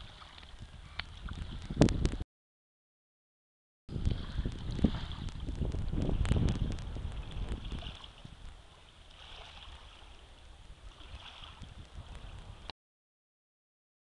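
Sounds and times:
wind buffeting microphone: 0.0s - 2.2s, 3.9s - 12.7s.

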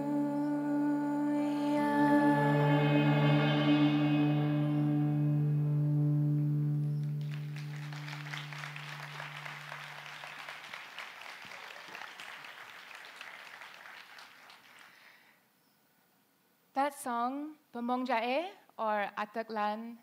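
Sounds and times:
held sung note: 0.0s - 6.9s
audience applause: 7.0s - 15.2s.

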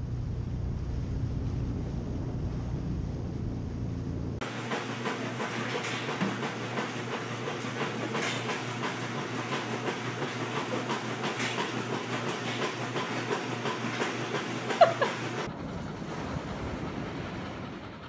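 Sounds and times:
treadmill motor humming: 0.0s - 16.2s
treadmill belt clattering: 4.4s - 15.5s.

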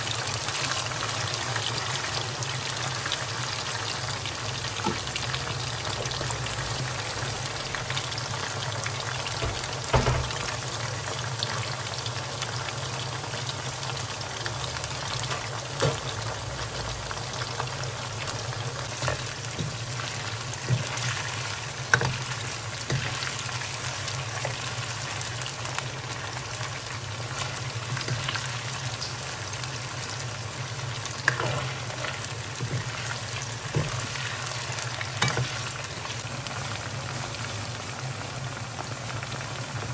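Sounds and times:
meat deep-frying sizzle: 0.0s - 39.9s.

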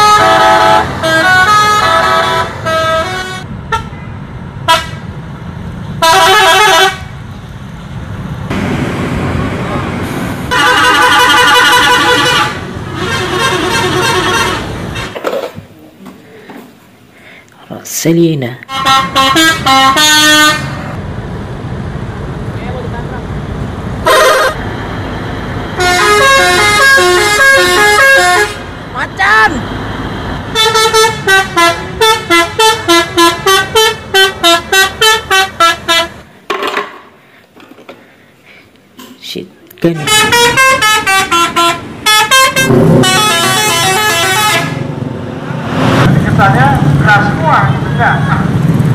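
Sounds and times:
bus musical horn blasts: 0.0s - 5.2s, 6.0s - 7.2s, 10.5s - 15.2s, 18.7s - 21.0s, 24.0s - 24.7s, 25.7s - 29.5s, 30.5s - 36.3s, 39.9s - 45.0s.

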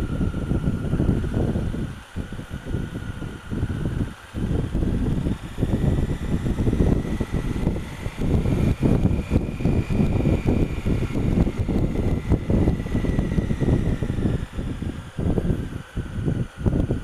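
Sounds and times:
wind buffeting microphone: 0.0s - 17.0s
motorcycle engine running: 3.2s - 15.7s.

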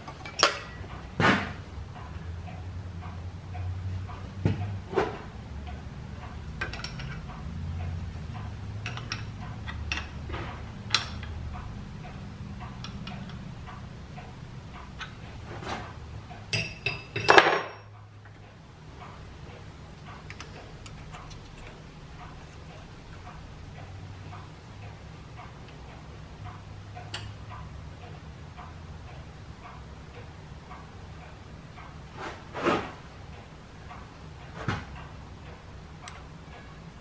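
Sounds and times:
steady low hum: 0.0s - 37.0s
steel parts clicking and clinking: 0.1s - 1.1s, 5.7s - 11.4s, 16.5s - 18.0s, 20.1s - 23.4s.

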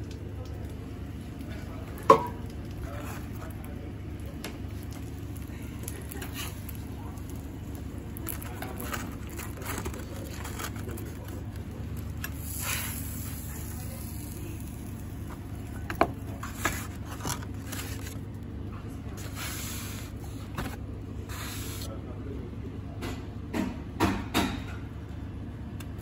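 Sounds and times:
egg frying on a griddle: 0.0s - 16.9s
low kitchen hum: 0.0s - 26.0s.

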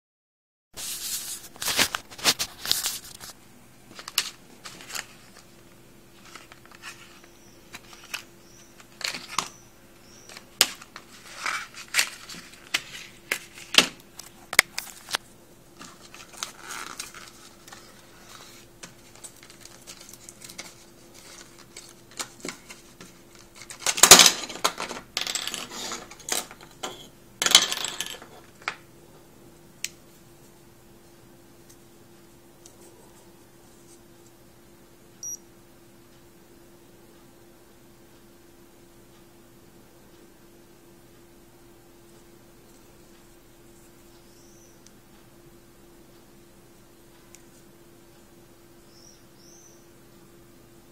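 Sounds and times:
cardboard and plastic rustling: 0.8s - 9.6s, 10.3s - 25.0s.

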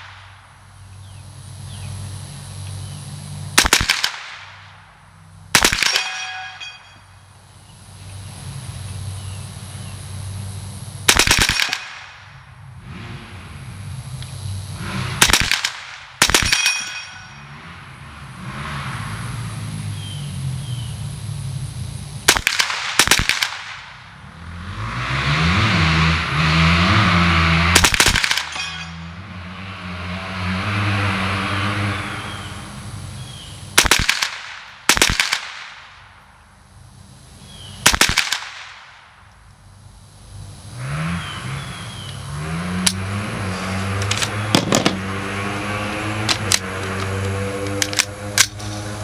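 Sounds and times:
rifle shots: 3.5s - 4.8s, 5.5s - 6.9s, 11.0s - 12.3s, 15.2s - 17.4s, 22.3s - 24.0s, 27.7s - 28.9s, 33.8s - 36.2s, 37.8s - 39.2s, 44.1s - 45.1s.

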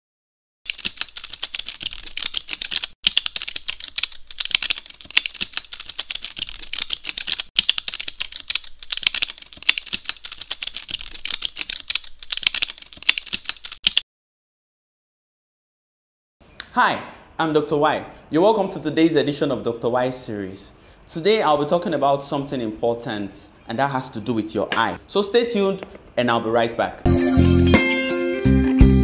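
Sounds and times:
rapid keyboard typing: 0.7s - 14.0s.

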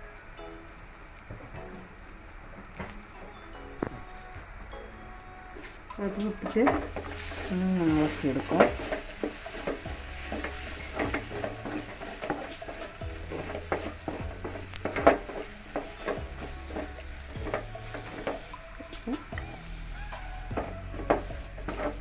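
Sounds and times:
masala sizzling in oil: 5.5s - 22.0s
wooden spatula scraping a pan: 6.1s - 22.0s.

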